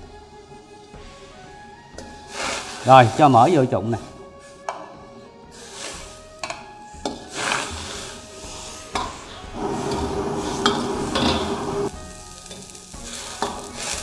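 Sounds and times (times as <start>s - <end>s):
boiling water: 9.5s - 11.9s
utensil scraping pot: 9.6s - 11.9s.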